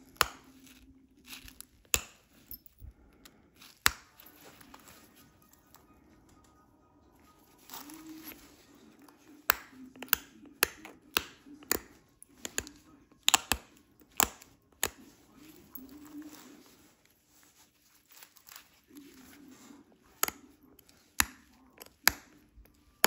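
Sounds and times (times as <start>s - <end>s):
stone flakes snapping clicks: 1.4s - 2.2s.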